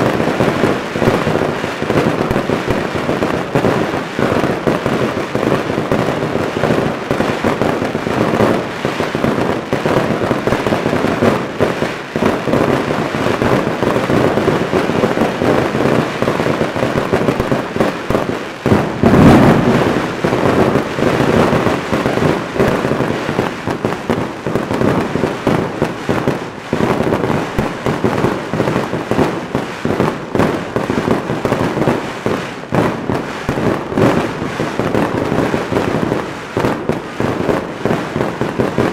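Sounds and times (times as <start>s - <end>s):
firecrackers crackling: 0.0s - 38.9s
heavy firework boom: 18.6s - 22.5s
aerial shells bursting: 18.8s - 21.0s.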